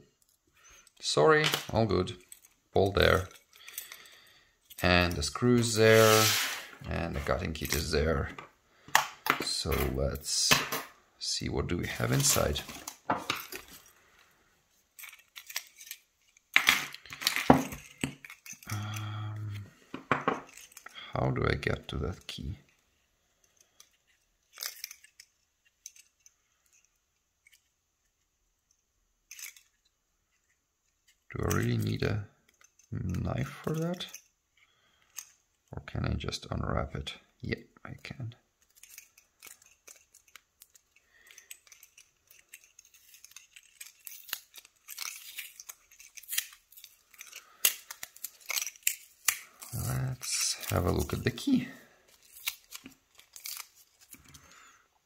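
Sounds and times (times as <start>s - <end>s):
tape crinkling: 38.6s - 54.8s.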